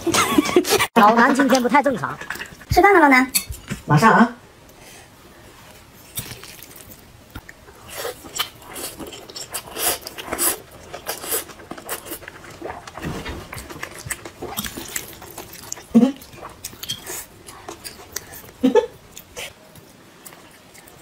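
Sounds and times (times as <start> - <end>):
noodles slurped and chewed: 7.7 - 19.6.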